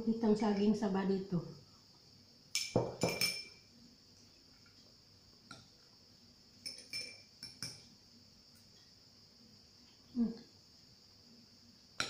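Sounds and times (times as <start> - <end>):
cutlery clinking on a plate: 2.6 - 3.6, 6.6 - 7.8.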